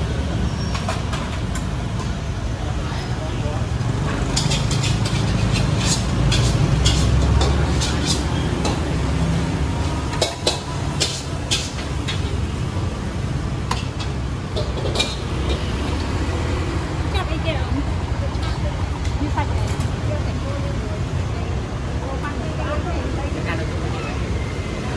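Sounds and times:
low rumble of road traffic: 0.0s - 24.9s
metal tongs clattering on pans: 4.1s - 9.1s, 10.1s - 12.4s, 13.7s - 15.7s.

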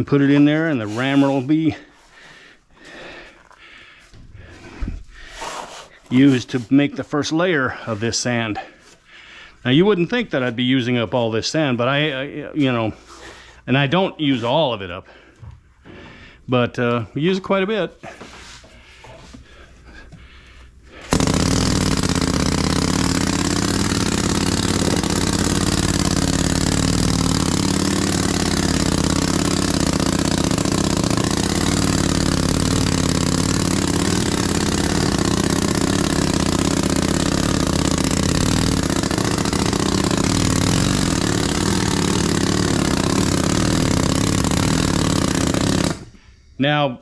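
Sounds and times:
pneumatic sand rammer hammering: 20.9s - 46.2s.

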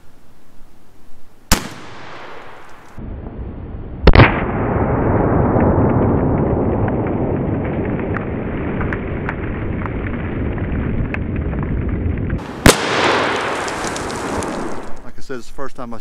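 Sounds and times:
loud shotgun blast: 1.5s - 2.6s, 4.0s - 5.6s, 12.4s - 15.0s.

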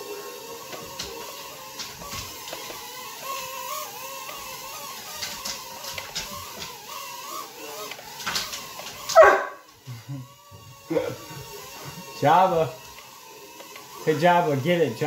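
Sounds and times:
toy drone propellers whining: 0.0s - 15.0s.

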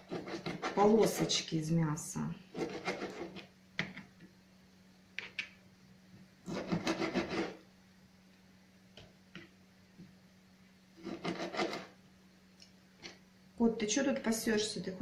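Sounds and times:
knife slicing on cutting board: 0.0s - 1.2s
faint steady hum: 0.0s - 15.0s.

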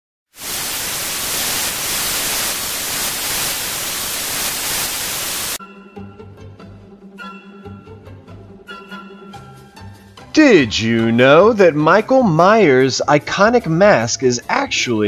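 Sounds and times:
television static hiss: 0.4s - 5.6s
quiet music: 5.6s - 15.0s.

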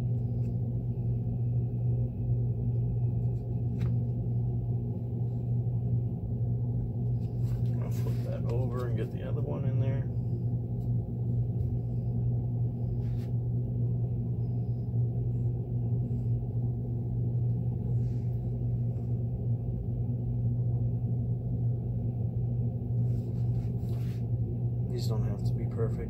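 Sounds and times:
low machine hum: 0.0s - 26.0s.

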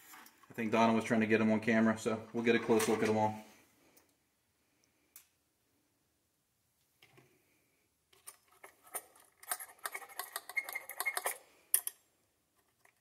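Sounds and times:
small hard items clicking and clattering: 8.1s - 13.0s.

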